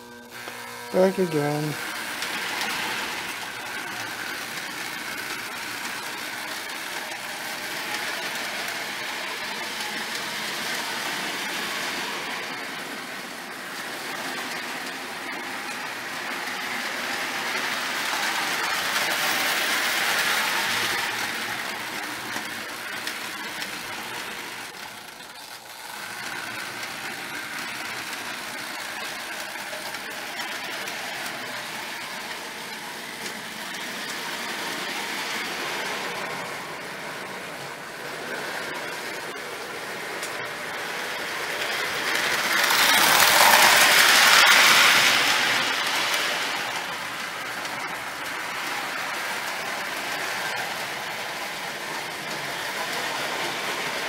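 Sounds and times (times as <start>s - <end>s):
toy train whirring on track: 0.0s - 54.0s.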